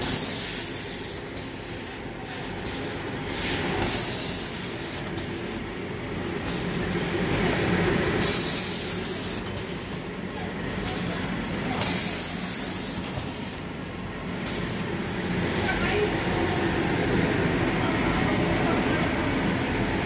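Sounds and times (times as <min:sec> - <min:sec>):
wrapping machine humming: 0:00.0 - 0:20.0
compressed air hissing: 0:08.2 - 0:09.5.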